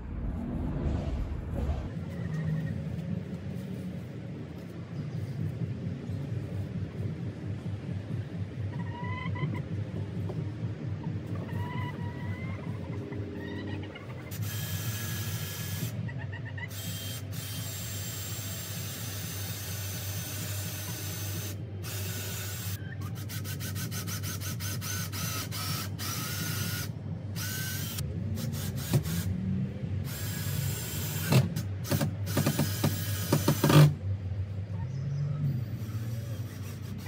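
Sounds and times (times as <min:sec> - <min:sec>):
power drill running: 0:16.7 - 0:29.2, 0:30.1 - 0:33.9.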